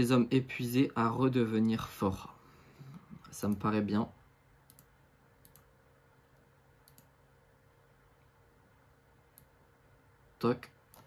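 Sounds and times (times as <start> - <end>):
computer mouse clicks: 4.6 - 5.7, 6.3 - 7.2, 9.3 - 9.6.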